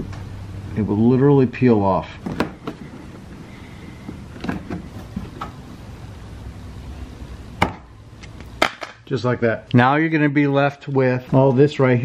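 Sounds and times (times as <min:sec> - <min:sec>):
plastic snapping: 0:07.6 - 0:09.0.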